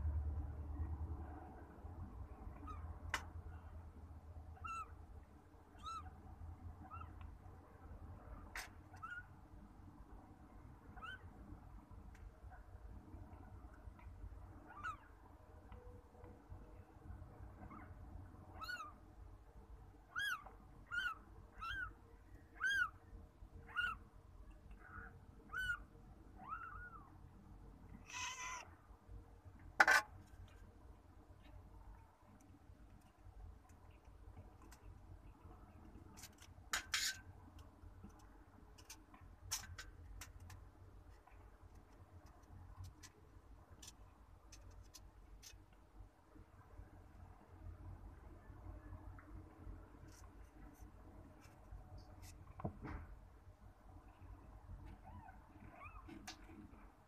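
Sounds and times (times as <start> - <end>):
kittens mewing: 28.0 - 28.8.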